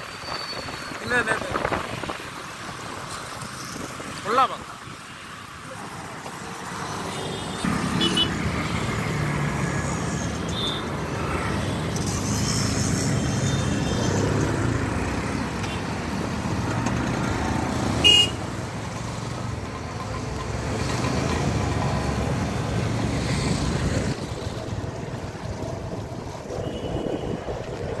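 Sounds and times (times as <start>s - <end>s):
traffic rumble: 0.0s - 28.0s
vehicle horn beep: 18.0s - 18.4s, 26.6s - 27.4s.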